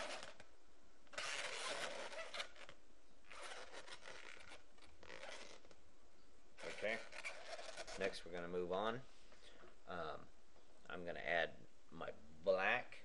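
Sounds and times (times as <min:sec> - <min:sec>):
latex balloons rubbing: 0:00.0 - 0:00.4, 0:01.1 - 0:05.7, 0:06.6 - 0:08.2.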